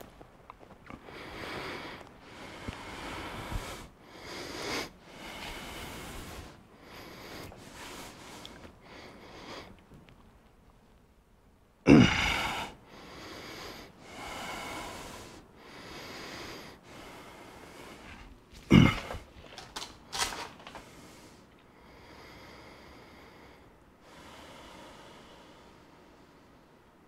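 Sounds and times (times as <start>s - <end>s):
man breathing heavily: 0.8s - 9.8s, 11.9s - 27.0s
loud huffs of effort: 11.9s - 19.4s.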